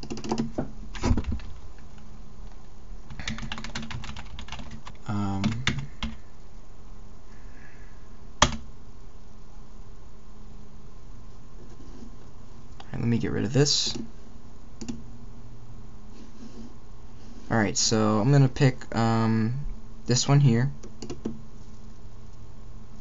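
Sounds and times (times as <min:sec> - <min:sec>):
typing on computer keyboard: 0:00.0 - 0:00.6, 0:03.1 - 0:06.2, 0:20.9 - 0:21.4.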